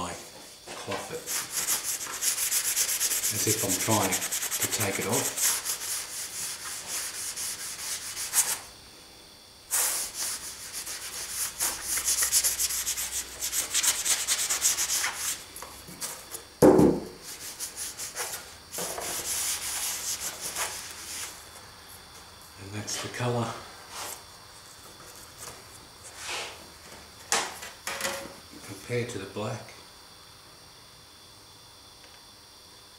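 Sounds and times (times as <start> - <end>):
cloth rubbing scratchy strokes: 1.2 - 8.6
short thump: 16.6 - 17.1.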